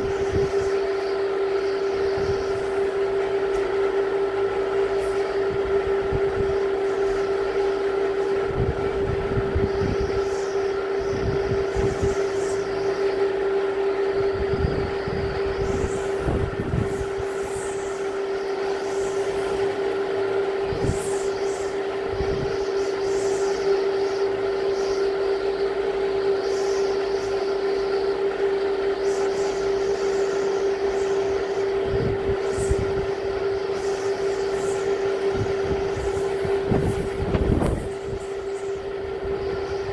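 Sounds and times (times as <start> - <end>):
wind gusting on microphone: 0.0 - 3.0, 8.3 - 12.8, 14.0 - 18.4, 20.4 - 23.1, 31.6 - 39.9
steady hum: 0.0 - 39.9.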